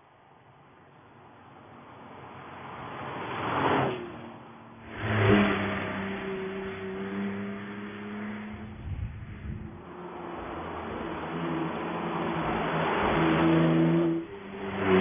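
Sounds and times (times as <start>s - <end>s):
sports car engine accelerating: 4.8s - 15.0s.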